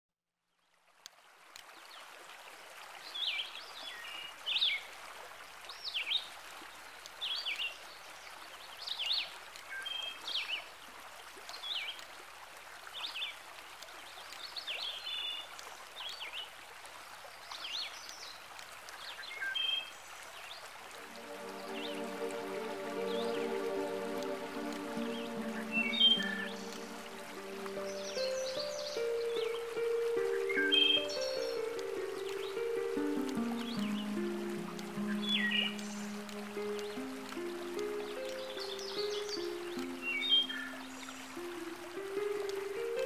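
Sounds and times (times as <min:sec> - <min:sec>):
running water hissing: 0:21.0 - 0:43.0.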